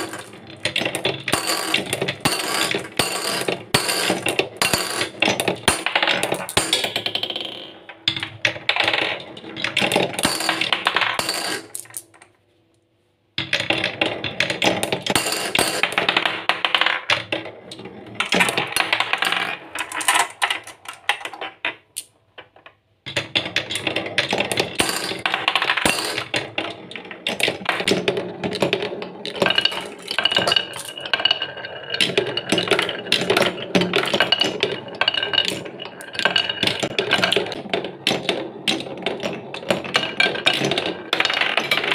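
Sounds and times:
marbles clattering down wooden run: 0.0s - 12.2s, 13.4s - 17.4s, 23.2s - 41.9s.

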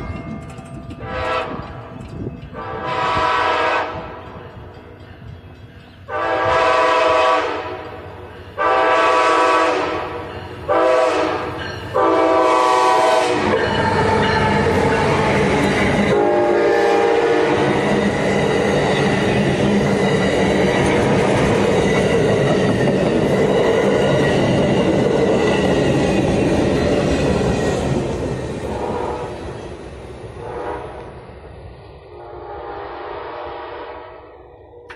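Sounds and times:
train horn blasts: 1.0s - 1.7s, 2.5s - 4.3s, 6.1s - 8.0s, 8.6s - 15.3s, 16.0s - 17.8s, 28.7s - 29.4s, 30.4s - 31.2s, 32.1s - 34.9s
train wheels clattering over rails: 9.4s - 30.0s.

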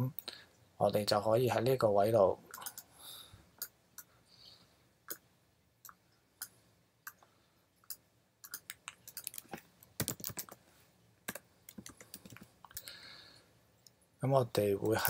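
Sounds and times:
computer keyboard key presses: 10.0s - 10.6s.

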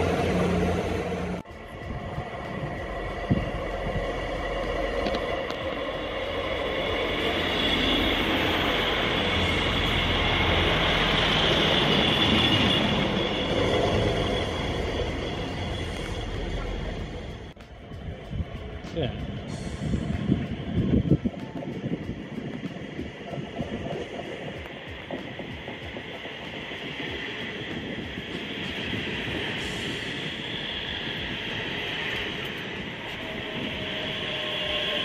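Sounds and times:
wheel-on-rail noise: 0.0s - 35.0s
high brake squeal: 6.9s - 16.9s, 33.0s - 35.0s.

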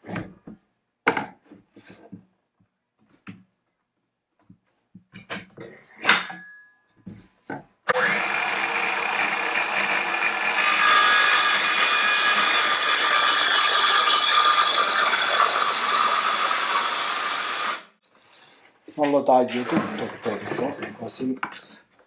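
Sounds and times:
circular saw running: 7.9s - 17.9s
saw cutting wooden board: 7.9s - 18.0s.

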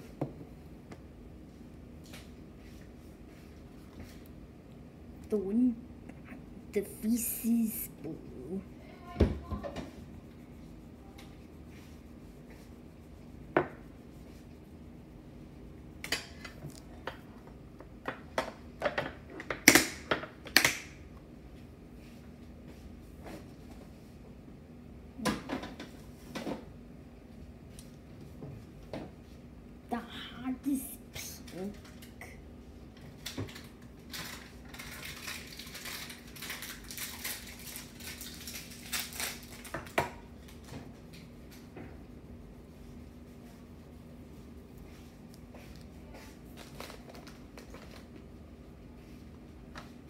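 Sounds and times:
crayon scratching on paper: 9.8s - 14.9s.

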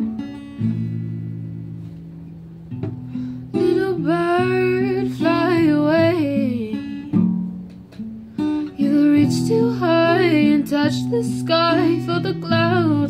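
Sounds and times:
acoustic guitar slow song: 0.0s - 13.0s
person singing: 3.6s - 7.1s, 8.8s - 13.0s.

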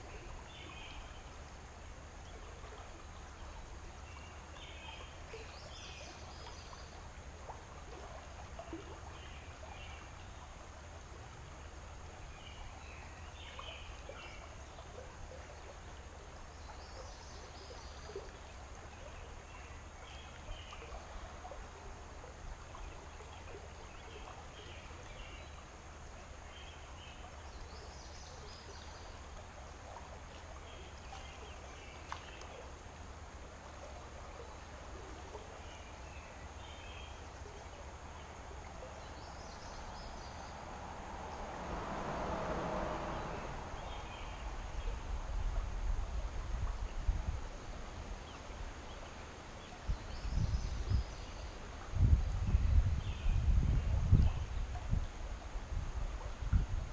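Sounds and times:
flowing river water: 0.0s - 56.9s
faint sharp clicks: 32.0s - 32.6s.

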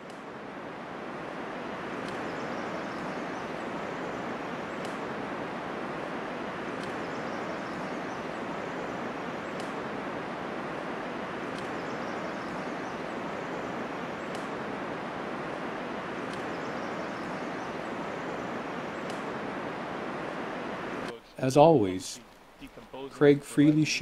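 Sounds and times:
faint click: 0.0s - 0.2s, 2.0s - 2.3s, 4.8s - 5.0s, 9.6s - 9.8s, 11.5s - 11.8s, 14.3s - 14.5s, 16.2s - 16.5s, 19.0s - 19.3s
running water rushing: 0.0s - 23.1s.

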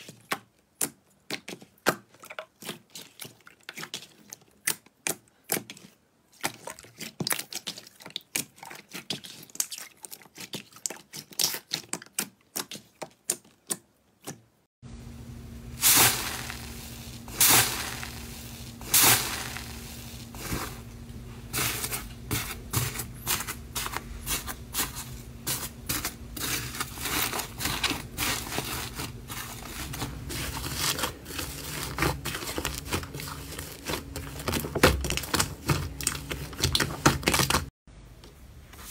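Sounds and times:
slime squelching and popping: 0.0s - 14.4s, 21.6s - 37.7s
faint steady hum: 14.8s - 38.9s
foam bead slime crackling: 15.8s - 37.7s.

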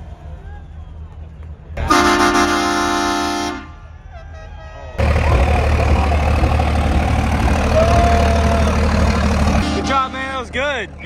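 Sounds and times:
diesel truck engine running: 0.0s - 11.0s
horn blast: 1.8s - 10.6s.

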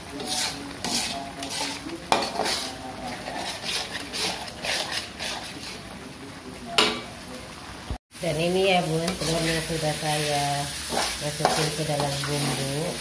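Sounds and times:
metal spatula scraping wok: 0.0s - 6.0s, 8.8s - 13.0s.

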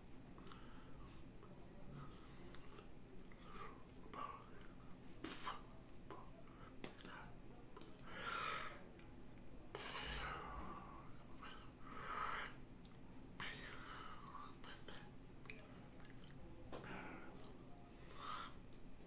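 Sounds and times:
man whispering: 0.8s - 8.9s, 13.4s - 18.6s.

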